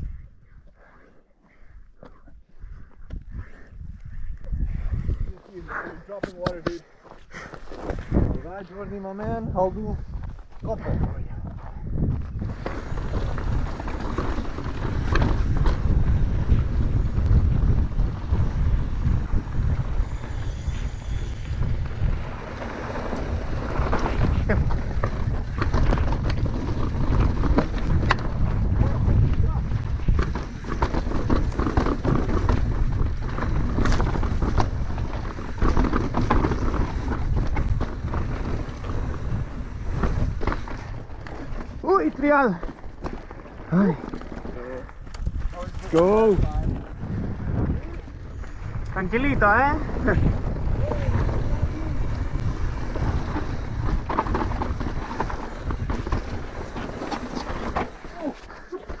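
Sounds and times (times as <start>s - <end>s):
wind on microphone: 0.0s - 0.9s, 1.6s - 6.6s, 7.8s - 42.0s, 43.7s - 59.0s
bike clacking and rattling: 12.4s - 59.0s
tyres crunching over rock: 29.3s - 46.9s.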